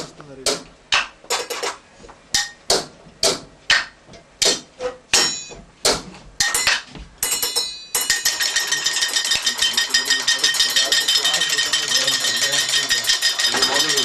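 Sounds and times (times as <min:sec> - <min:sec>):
sharp knocks on objects: 0:00.0 - 0:14.0
steady ringing tone: 0:06.5 - 0:14.0
fast continuous rattle: 0:07.3 - 0:14.0.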